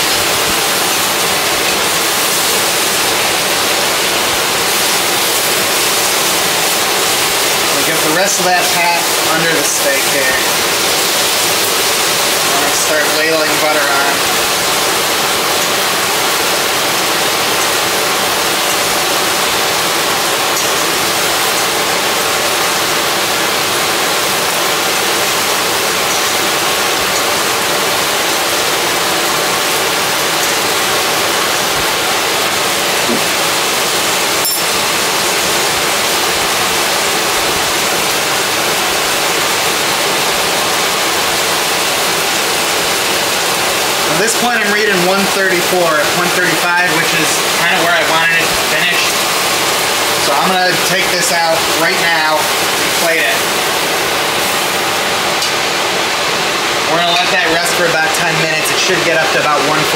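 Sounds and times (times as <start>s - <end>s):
butter sizzling in a pan: 0.4s - 33.8s.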